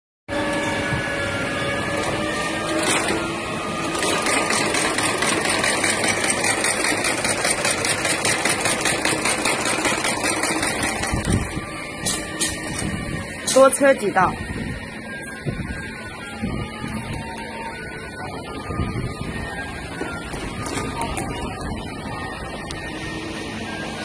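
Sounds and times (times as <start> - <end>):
sewing machine running: 1.9 - 11.6.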